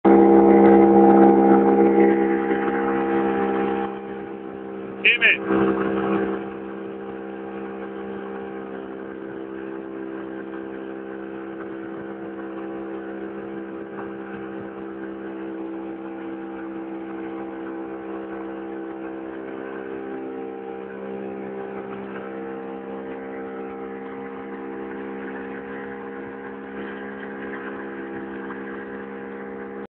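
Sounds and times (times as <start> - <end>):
outboard motor running: 0.0 - 29.9.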